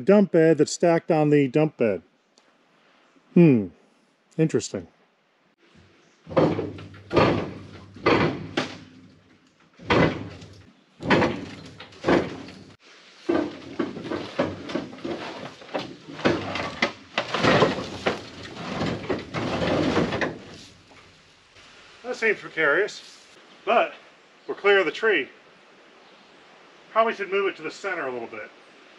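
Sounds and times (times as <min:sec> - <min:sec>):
heavy steel parts clanking: 0:06.3 - 0:21.1
metal grinding scrape: 0:09.8 - 0:21.0.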